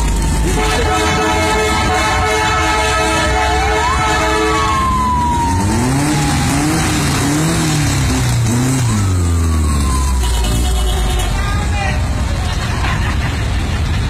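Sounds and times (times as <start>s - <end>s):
engine revving: 0.0s - 11.4s
held horn tone: 0.4s - 5.0s
siren-like whistle gliding: 3.5s - 7.4s, 8.7s - 10.8s.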